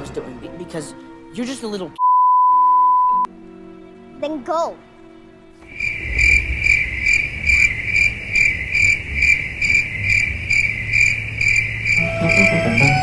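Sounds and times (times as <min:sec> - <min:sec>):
crickets chirping: 0:05.6 - 0:13.0.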